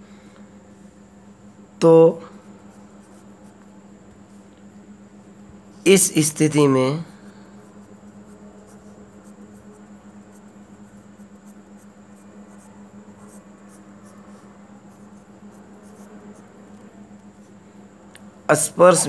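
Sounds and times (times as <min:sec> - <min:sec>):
steady low hum: 0:00.0 - 0:19.0
pen scratching on paper: 0:02.5 - 0:03.7, 0:05.8 - 0:17.6.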